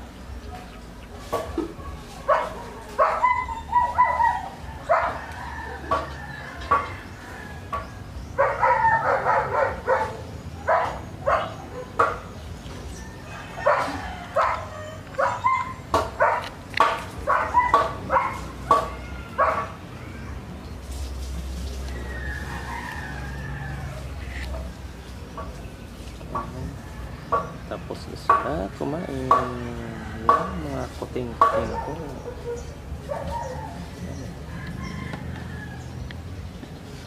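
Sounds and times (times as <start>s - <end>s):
animal cries and yips: 1.8s - 6.2s, 13.5s - 16.5s, 17.2s - 20.6s, 31.5s - 35.1s.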